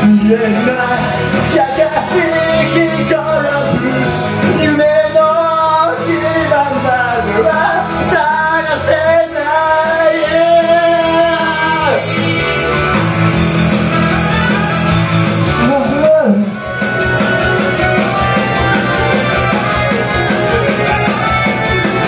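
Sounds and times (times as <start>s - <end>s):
man singing karaoke: 0.0s - 13.3s, 15.5s - 16.7s
backing music: 0.0s - 22.0s.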